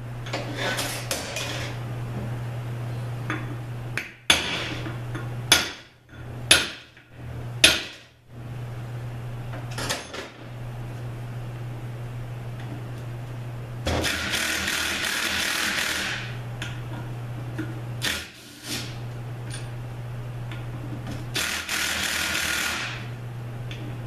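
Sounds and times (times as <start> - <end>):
steady low hum: 0.0 - 24.0
power tool running: 13.9 - 16.4, 21.3 - 23.1.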